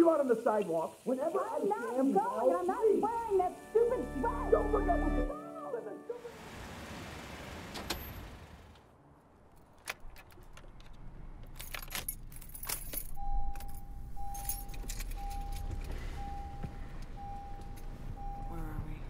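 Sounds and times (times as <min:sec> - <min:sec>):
car keys jangling: 0:09.9 - 0:18.0
car engine starting and running: 0:09.9 - 0:19.0
dashboard warning chime beeping: 0:13.1 - 0:19.0.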